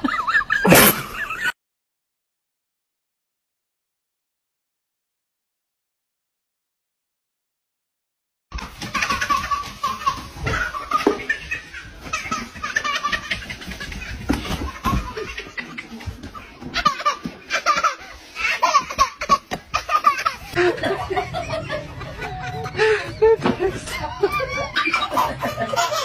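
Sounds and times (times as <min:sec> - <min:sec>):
baby laughing: 0:08.6 - 0:26.0.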